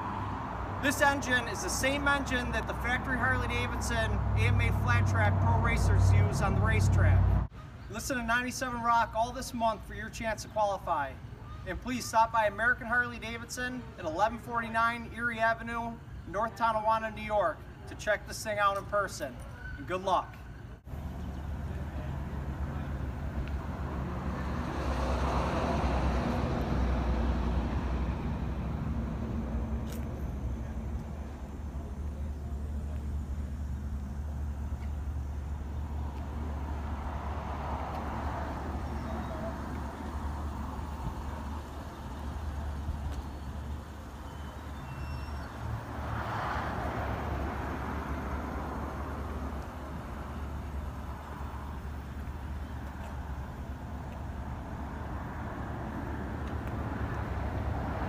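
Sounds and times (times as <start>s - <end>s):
vehicle passing by: 0.0s - 7.5s, 20.9s - 58.0s
low traffic rumble: 0.0s - 58.0s
low engine hum: 1.5s - 7.5s, 20.8s - 58.0s.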